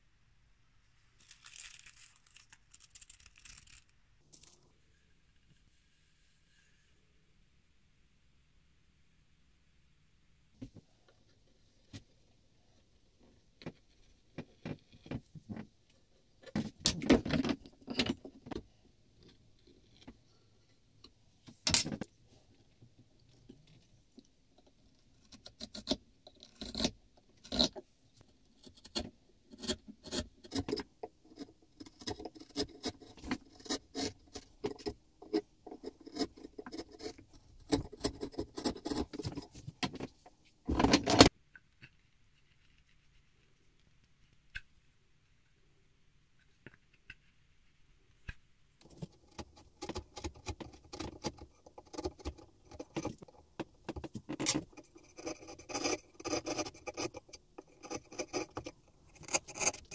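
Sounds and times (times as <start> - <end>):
scraping and rubbing: 1.2 - 4.9, 29.6 - 41.3, 48.8 - 59.9.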